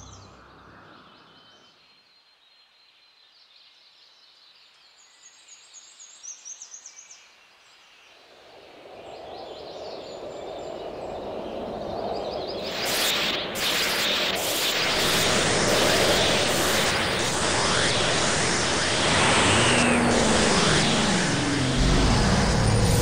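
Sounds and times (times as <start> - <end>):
birds chirping: 0.0 - 1.8
rushing noise: 12.6 - 23.0.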